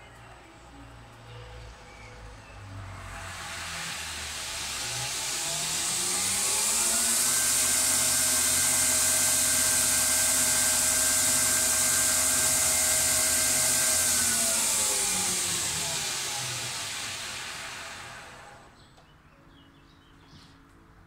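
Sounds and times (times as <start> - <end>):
belt grinder whine: 2.8 - 18.8.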